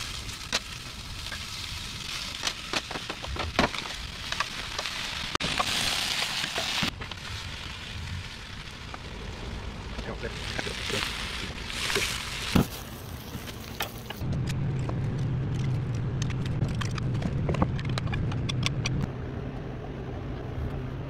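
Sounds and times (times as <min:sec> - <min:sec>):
food sizzling in a pan: 0:04.0 - 0:12.8
low hum: 0:13.6 - 0:21.0.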